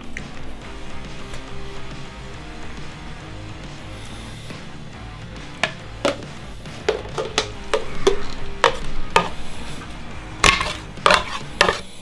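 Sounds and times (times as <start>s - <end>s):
metal spoon knocking plastic jug: 5.5s - 9.4s, 10.4s - 11.8s.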